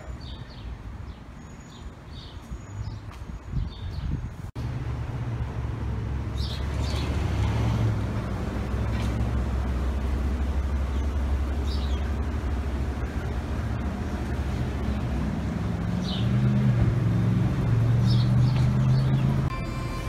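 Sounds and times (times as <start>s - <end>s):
low motor hum: 4.6s - 20.0s.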